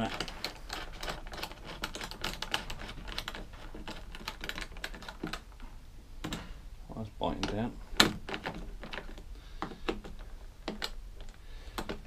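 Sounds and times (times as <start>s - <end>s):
clicks and taps on plastic: 7.4s - 12.0s.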